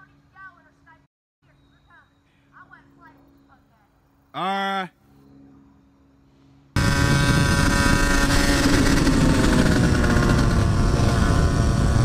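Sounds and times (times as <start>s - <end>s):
dirt bike engine running: 6.8s - 12.0s.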